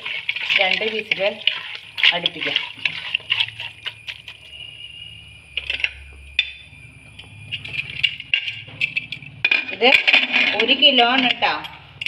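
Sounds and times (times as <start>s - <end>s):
faint steady hum: 0.0s - 12.0s
cookware clinking: 7.5s - 11.8s.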